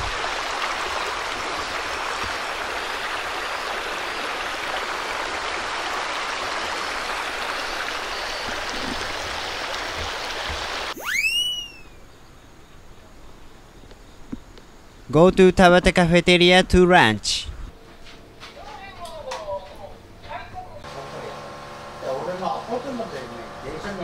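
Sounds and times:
river water rushing over stones: 0.0 - 11.0
swooping sound effect: 11.0 - 11.9.

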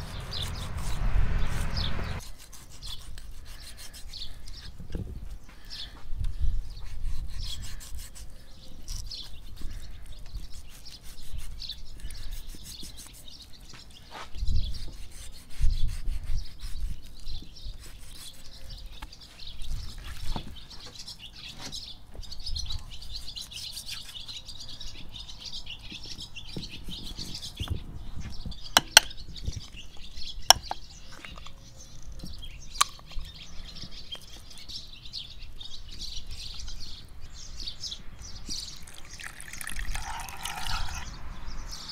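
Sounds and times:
birds chirping: 0.0 - 2.2, 2.8 - 14.9, 16.4 - 41.9
knife cutting meat: 2.2 - 4.2, 6.8 - 13.3.

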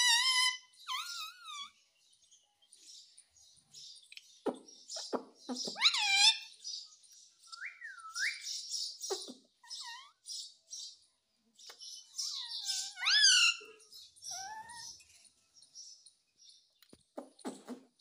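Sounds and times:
parakeet chattering and whistling: 0.0 - 1.7, 4.5 - 6.6, 7.6 - 10.5, 12.2 - 14.9
parakeet rising screeches: 0.0 - 1.7.

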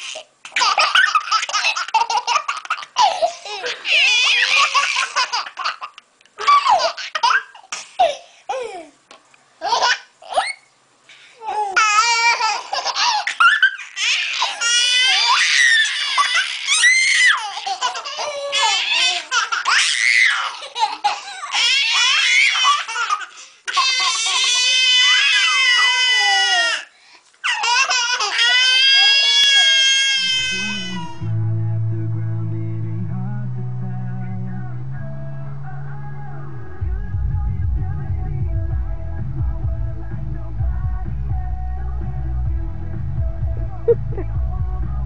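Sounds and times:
baby laughing: 0.0 - 9.0, 9.6 - 10.7, 11.4 - 26.8, 27.4 - 31.2
girl laughing: 0.5 - 8.9, 43.6 - 44.4.

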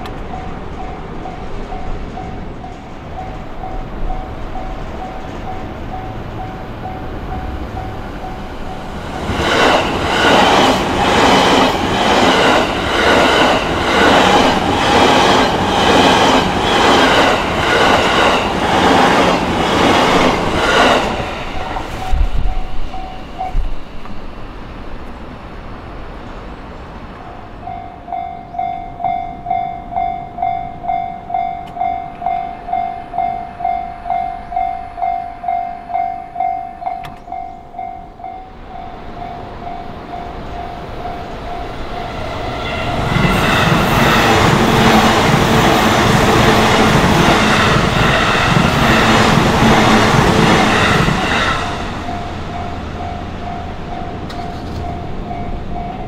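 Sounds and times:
crossing warning bell ringing: 0.0 - 19.4, 20.0 - 24.6, 27.2 - 43.8, 50.2 - 56.0.

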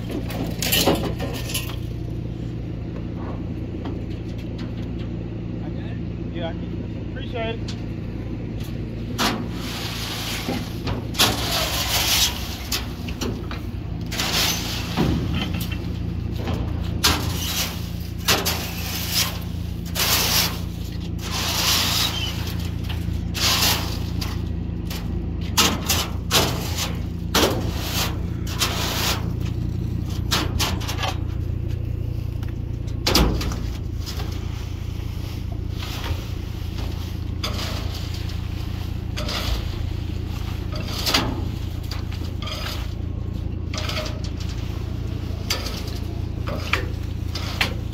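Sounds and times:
diesel engine idling: 0.0 - 47.9
metal tools scraping steel floor: 9.5 - 13.0, 14.1 - 15.8, 17.1 - 24.4, 35.4 - 43.1.

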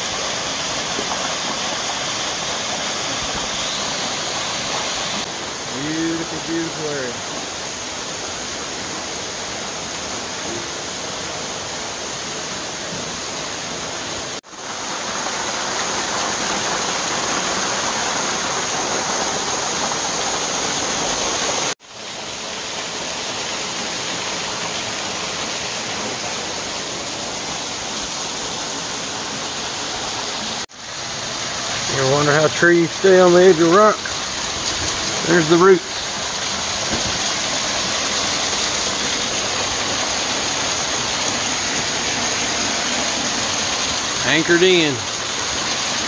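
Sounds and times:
waterfall rushing: 0.0 - 46.0.

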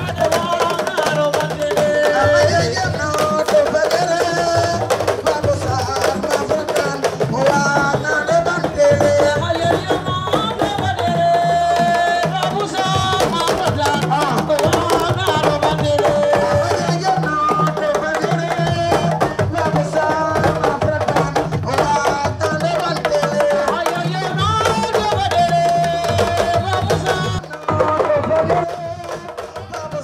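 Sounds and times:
drums playing: 0.0 - 30.0.

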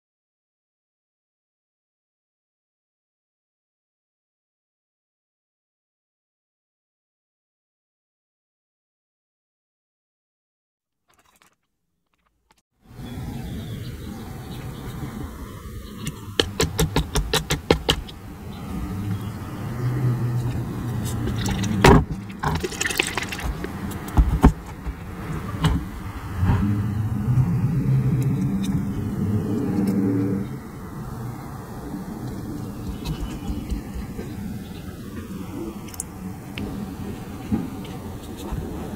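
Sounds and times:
bottles clicking: 21.1 - 25.0
low rumble: 23.4 - 38.9.

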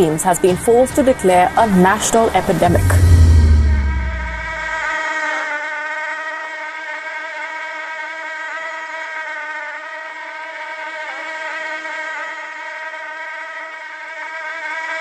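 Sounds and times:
low rumble: 2.4 - 4.7.

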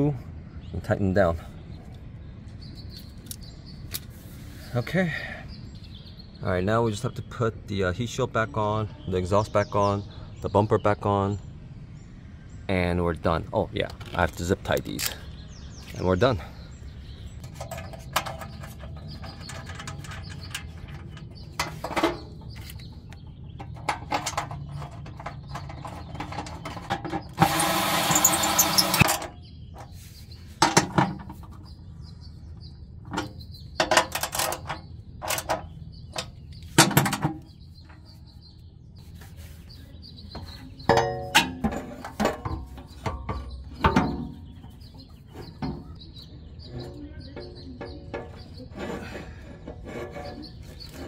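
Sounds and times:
birds chirping faintly: 0.0 - 51.0
tool and metal parts clicking: 13.9 - 15.2, 17.4 - 29.4, 33.1 - 37.3.

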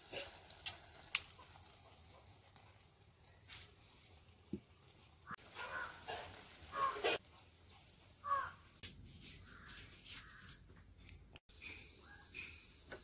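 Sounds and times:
crows cawing: 5.3 - 7.2, 8.2 - 8.7, 9.4 - 10.6.

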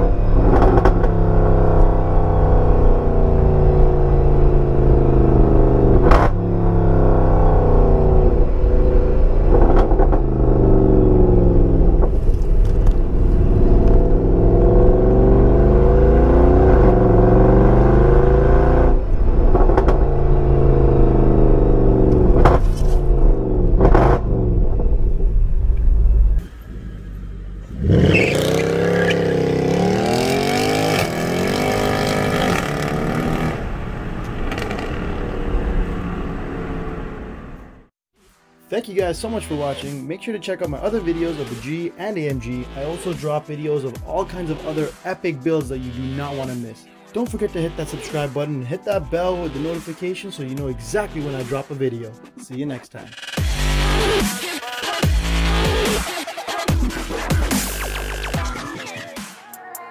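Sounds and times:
exhaust cracks: 0.0 - 37.8
car exhaust revving: 0.0 - 37.9.

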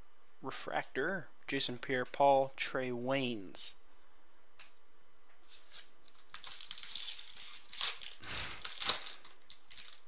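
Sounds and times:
foil wrapper crinkling and tearing: 5.5 - 10.0.

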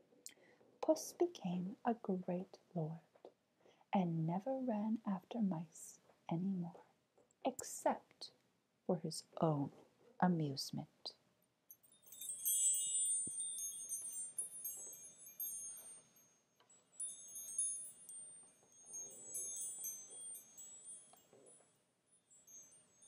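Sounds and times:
wind chimes tinkling: 11.7 - 23.0.

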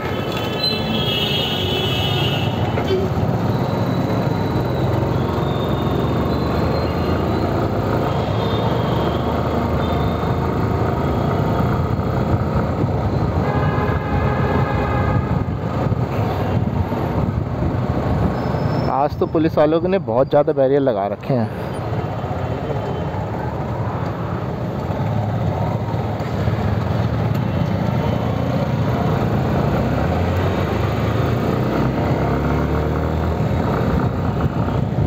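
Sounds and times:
vehicle horns: 0.0 - 3.1, 13.3 - 15.5
wind rushing over microphone: 15.0 - 18.5.

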